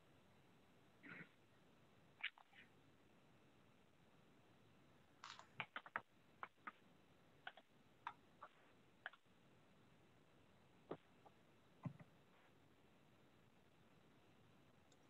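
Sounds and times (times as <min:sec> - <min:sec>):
computer keyboard typing: 0:05.2 - 0:06.8.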